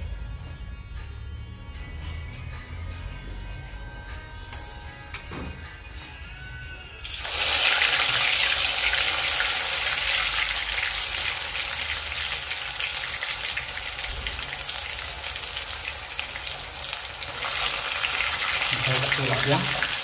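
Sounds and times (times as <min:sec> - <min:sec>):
hot oil sizzling in a wok: 0:07.0 - 0:20.0.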